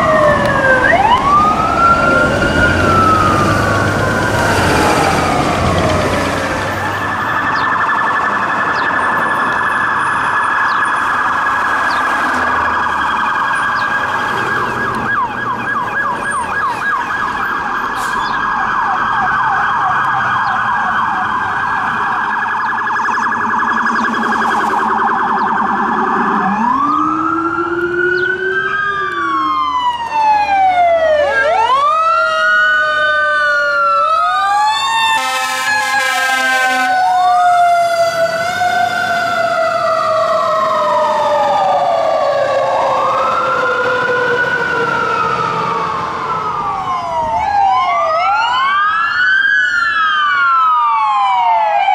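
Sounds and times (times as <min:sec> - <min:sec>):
electronic sirens wailing: 0:00.0 - 0:51.9
fire truck siren wailing: 0:00.0 - 0:51.9
horn blast: 0:35.1 - 0:37.0.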